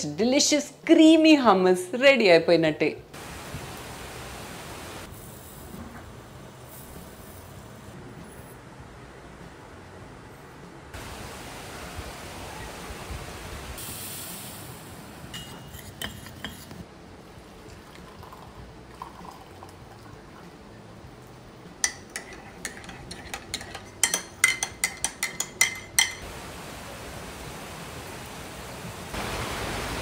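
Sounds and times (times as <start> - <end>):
heavy rain hissing: 3.2 - 8.0, 11.0 - 15.4, 26.2 - 30.0
metal spoon clinking in ceramic mug: 15.4 - 16.6, 21.8 - 26.2.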